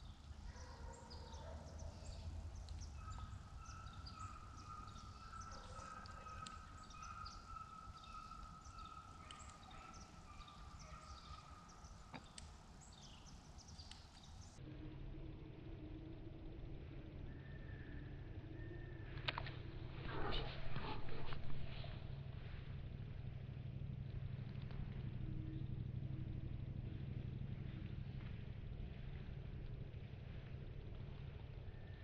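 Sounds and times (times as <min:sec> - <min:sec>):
small birds chirping: 0:00.0 - 0:14.6
low rumble: 0:00.0 - 0:32.0.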